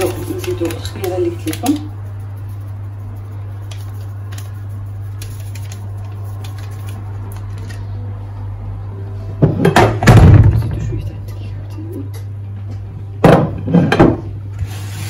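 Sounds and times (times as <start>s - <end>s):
powder ticking and rustling: 0.0s - 7.9s
low electrical hum: 0.0s - 15.0s.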